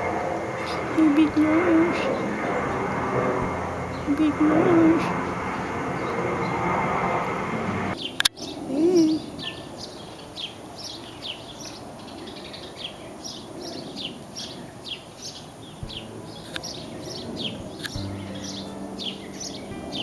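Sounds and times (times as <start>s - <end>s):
small songbirds chirping: 7.9s - 20.0s.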